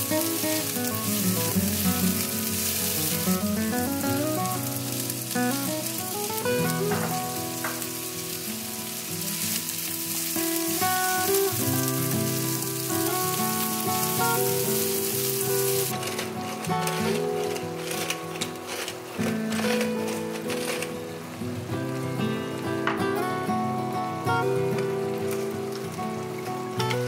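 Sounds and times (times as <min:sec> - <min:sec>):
food sizzling in a pan: 0:00.0 - 0:27.0
soft background music: 0:00.0 - 0:27.0
wooden spoon stirring: 0:15.6 - 0:20.9.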